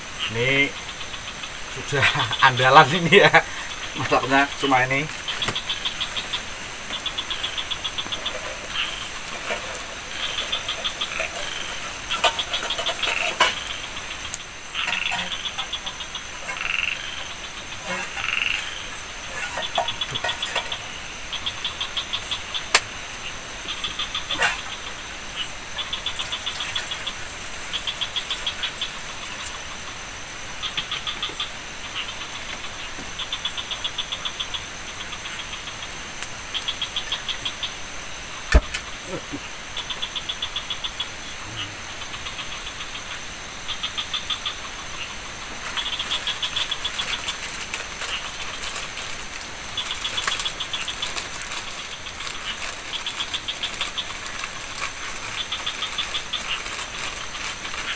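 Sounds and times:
frogs croaking: 0.0s - 57.9s
insect drone: 0.0s - 57.9s.

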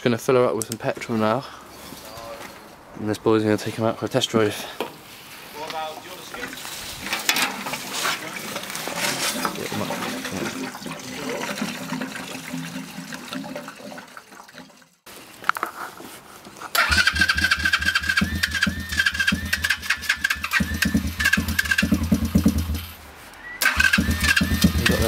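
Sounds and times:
petrol gurgling into fuel tank: 7.0s - 15.0s
motorbike engine running: 16.8s - 23.0s, 23.6s - 25.0s.

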